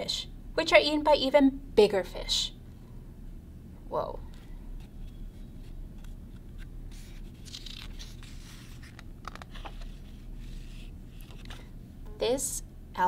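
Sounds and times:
low steady hum: 0:00.0 - 0:13.0
paper pages rustling: 0:04.4 - 0:11.8.

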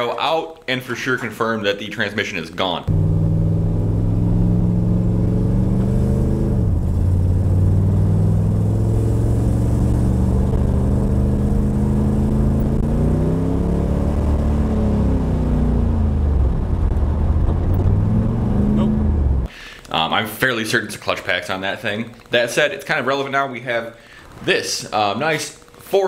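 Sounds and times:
car engine revving: 0:02.9 - 0:19.5.

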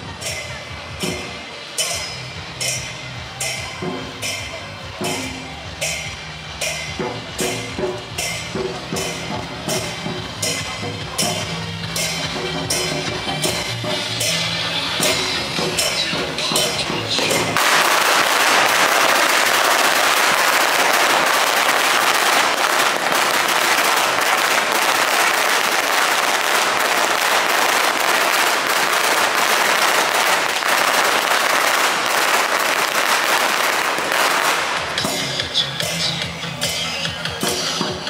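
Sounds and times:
music with pitched tones: 0:00.0 - 0:17.6, 0:21.3 - 0:38.0
firecrackers crackling: 0:00.0 - 0:38.0.

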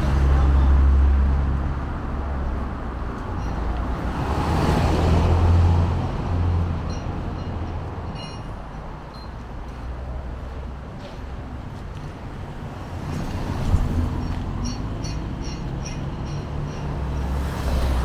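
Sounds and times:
vehicle passing: 0:03.7 - 0:06.9, 0:12.4 - 0:18.0.

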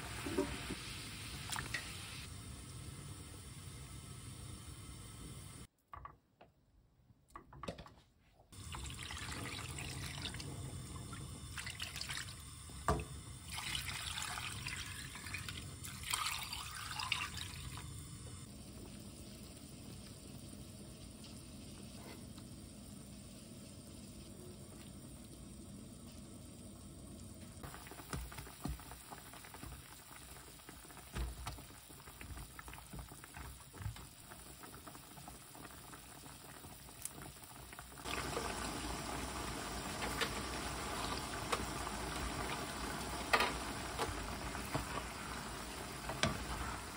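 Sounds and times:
liquid boiling and bubbling: 0:00.0 - 0:05.7, 0:08.5 - 0:46.9
liquid pouring into a pan: 0:08.6 - 0:18.0.

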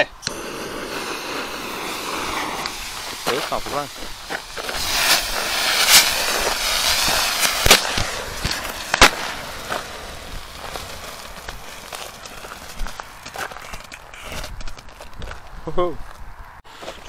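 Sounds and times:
fireworks fizzing hiss: 0:00.0 - 0:13.6
fireworks crackling: 0:00.0 - 0:15.4
firework pops and bangs: 0:00.2 - 0:15.4.

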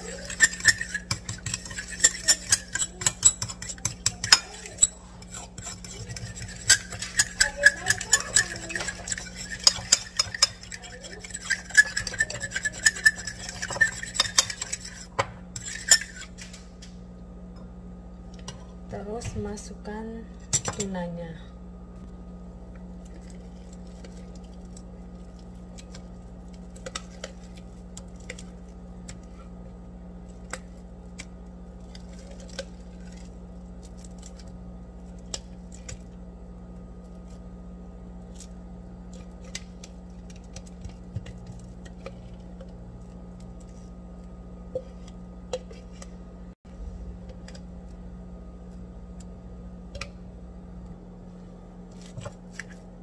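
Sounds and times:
paste squelching: 0:00.0 - 0:16.4
steady low hum: 0:00.0 - 0:53.0.

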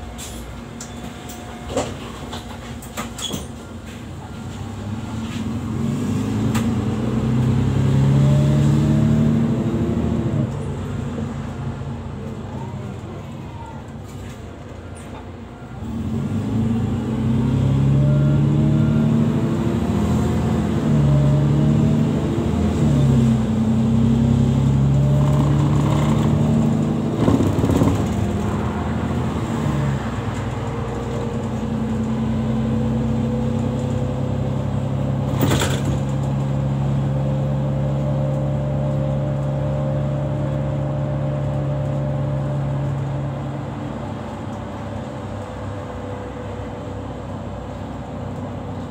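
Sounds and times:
bus engine pulling away: 0:00.0 - 0:48.9.

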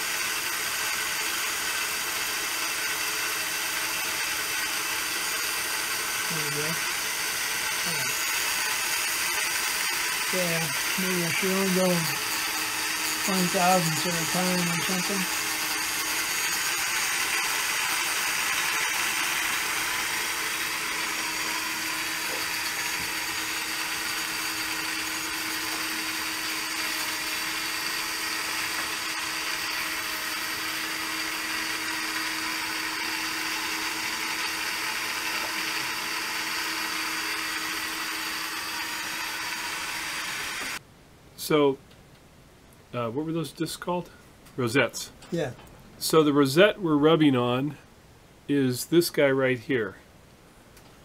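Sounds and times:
lathe cutter running: 0:00.0 - 0:40.8.

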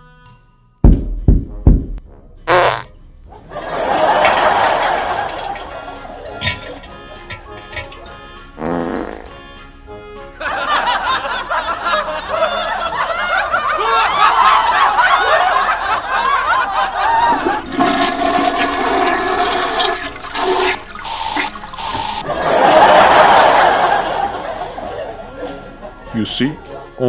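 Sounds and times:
toilet flushing: 0:03.6 - 0:08.2, 0:17.2 - 0:24.0
aerosol spray hissing: 0:20.3 - 0:22.2.

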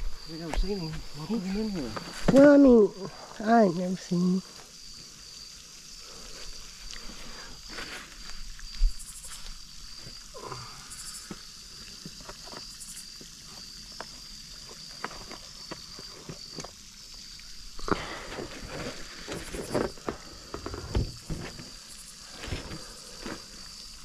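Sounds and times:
high insect trill: 0:00.0 - 0:24.0
clicks and rustles in grass: 0:06.4 - 0:10.3, 0:17.8 - 0:24.0.

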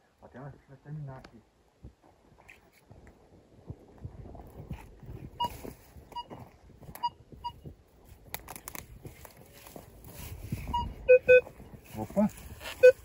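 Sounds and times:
metal detector beeps: 0:05.4 - 0:06.3, 0:07.0 - 0:07.6, 0:10.7 - 0:11.5, 0:12.6 - 0:13.0
brush rustling: 0:08.0 - 0:13.0.

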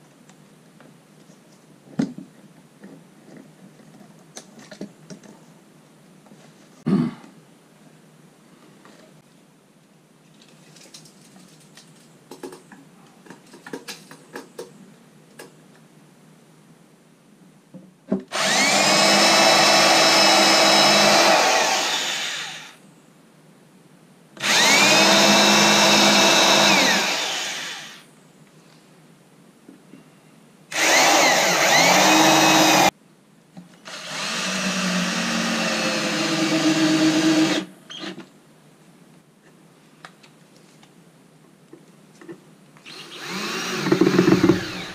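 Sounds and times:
cordless drill boring into wood: 0:18.3 - 0:22.8, 0:24.4 - 0:28.0, 0:30.7 - 0:32.9, 0:33.9 - 0:38.2, 0:42.8 - 0:44.9.

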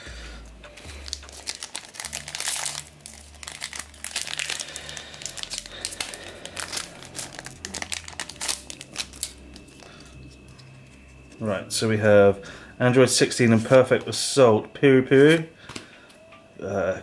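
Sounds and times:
foil pack crinkling and tearing: 0:01.0 - 0:10.7.

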